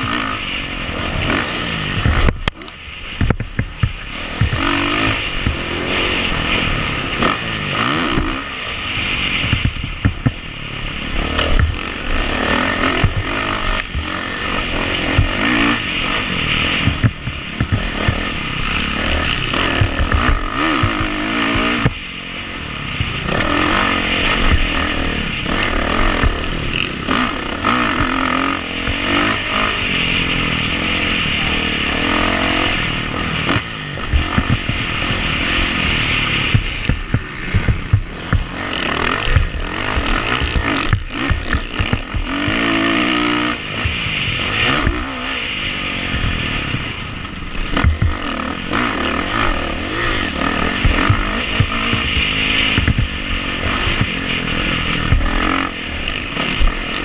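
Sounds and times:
motorcycle engine revving: 0.0s - 57.0s
bike knocking over bumps: 36.5s - 38.6s, 47.8s - 48.1s.

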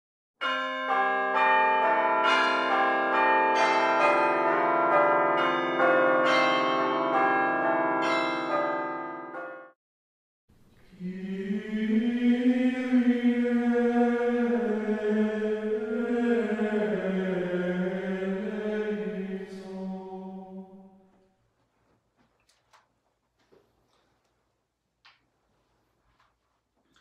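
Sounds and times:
church bells pealing: 0.4s - 9.7s
person chanting slowly: 10.8s - 21.1s.

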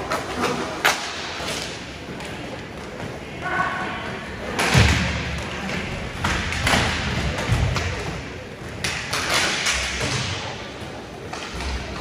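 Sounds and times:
hockey thuds and knocks: 4.6s - 12.0s.

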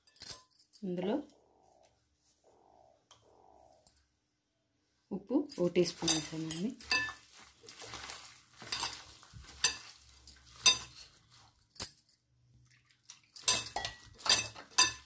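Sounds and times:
bangles clinking against glass: 5.5s - 7.2s, 8.6s - 12.2s, 13.4s - 15.0s
hand squishing food in marinade: 6.8s - 11.6s.

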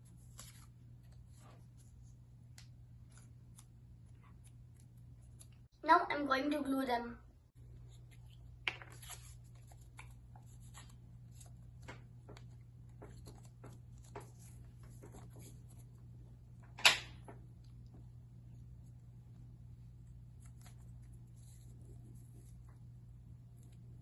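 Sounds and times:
paper rustling: 0.0s - 5.6s, 7.8s - 16.0s
low steady hum: 0.0s - 24.0s.

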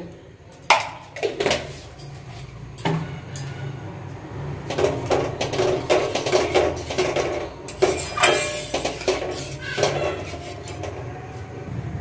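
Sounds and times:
metal spatula scraping a steel pan: 5.5s - 11.1s.

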